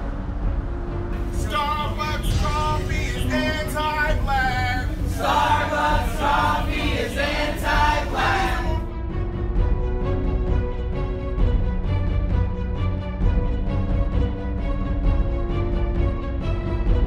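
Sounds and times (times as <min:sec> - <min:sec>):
quiet background music: 0:00.0 - 0:17.0
crowd chanting in unison: 0:01.4 - 0:08.9.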